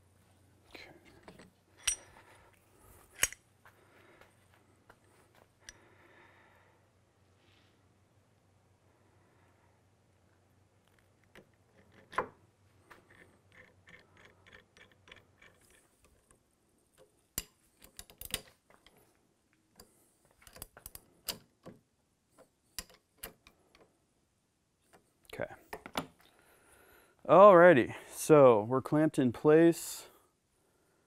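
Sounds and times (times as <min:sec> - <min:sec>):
steel tools clicking and clinking: 0:01.3 - 0:02.3, 0:03.1 - 0:03.4.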